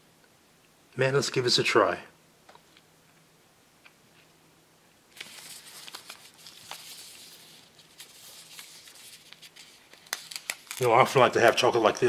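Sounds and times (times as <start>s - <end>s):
paper wrapper crinkling: 5.1s - 12.0s.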